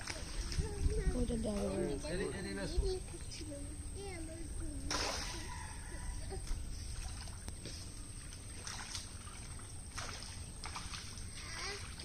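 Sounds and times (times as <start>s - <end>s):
short splashes: 0.0s - 1.7s, 4.8s - 12.0s
pond water splashing and sloshing: 0.0s - 12.0s.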